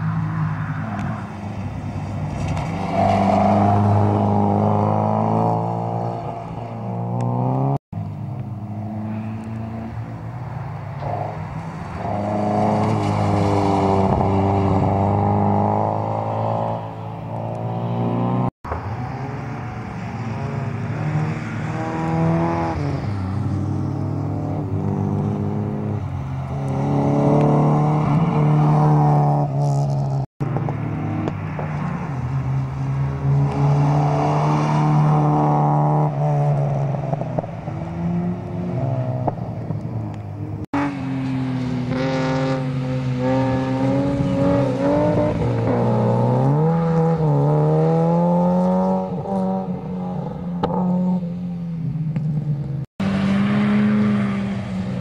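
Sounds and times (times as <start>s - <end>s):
car engine revving hard: 2.3s - 7.8s, 26.6s - 29.9s, 33.3s - 39.4s, 41.8s - 49.7s.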